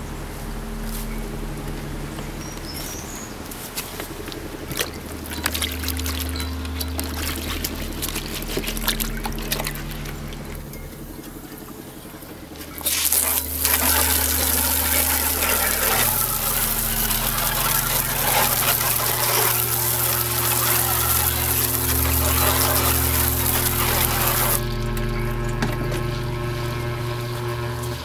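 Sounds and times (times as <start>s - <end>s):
water jet hissing onto metal plate: 12.8s - 24.6s.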